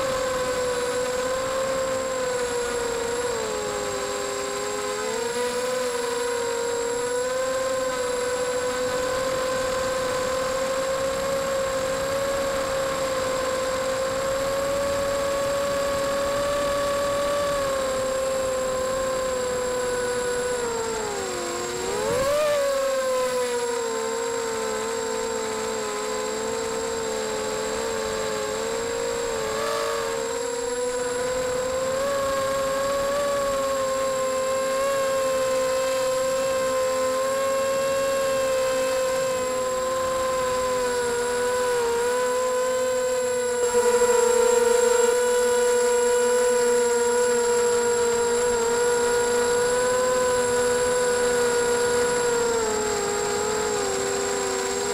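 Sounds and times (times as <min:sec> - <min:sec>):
quadcopter motors whining: 0:00.0 - 0:54.9.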